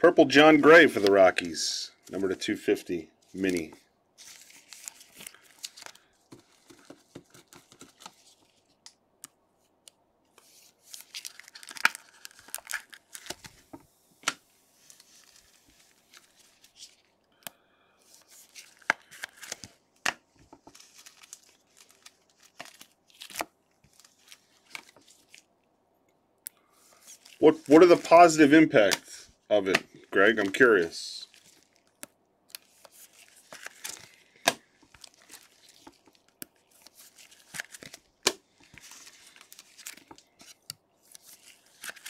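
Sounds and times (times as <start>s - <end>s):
foil wrappers crinkling and tearing: 3.4s - 6.9s, 10.8s - 13.6s, 20.6s - 25.5s, 26.9s - 29.1s, 30.3s - 32.0s, 32.6s - 42.0s.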